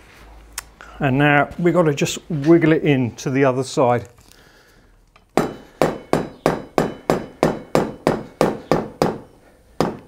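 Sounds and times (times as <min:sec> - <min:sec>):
hammer tapping metal axle: 0:05.4 - 0:10.0.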